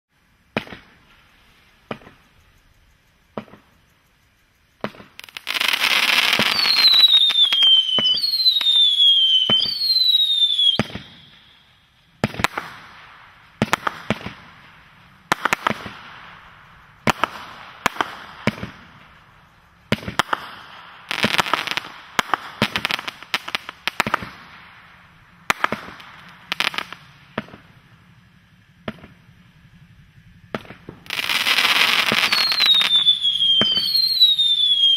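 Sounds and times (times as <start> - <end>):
firework cracks: 0.5 - 2.3, 4.8 - 28.2, 28.8 - 29.4, 30.4 - 34.9
firework bangs with crackle: 0.5 - 2.4, 3.3 - 3.8, 4.8 - 34.9
falling firework whistles: 0.5 - 3.8, 4.8 - 34.9
firework rushing noise: 12.1 - 34.9.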